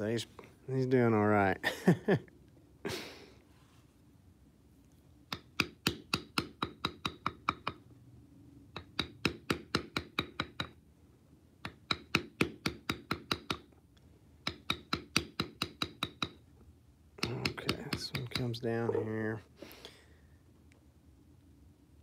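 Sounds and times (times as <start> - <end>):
mallet tapping metal stamp into leather: 5.3 - 7.8, 8.8 - 10.8, 11.6 - 13.7, 14.4 - 16.4, 17.2 - 18.6.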